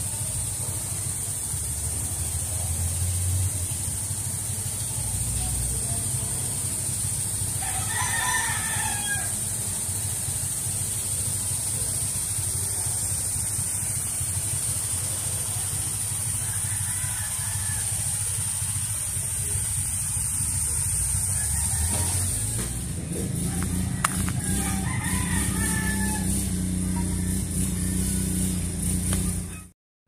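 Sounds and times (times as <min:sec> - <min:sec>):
constant high hiss: 0:00.0 - 0:29.7
rooster crowing: 0:07.0 - 0:10.5, 0:15.0 - 0:29.7
steady low rumble: 0:17.8 - 0:29.6.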